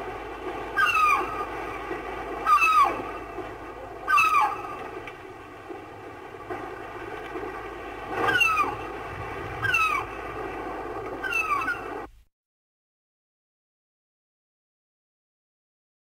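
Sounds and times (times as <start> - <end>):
gull calling: 0.7 - 3.4, 4.0 - 5.0, 8.1 - 10.4, 11.1 - 12.1.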